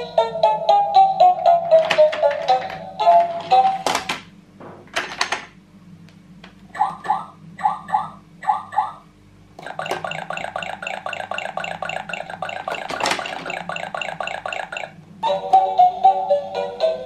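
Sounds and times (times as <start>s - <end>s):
rapid electronic patter: 9.6s - 15.0s.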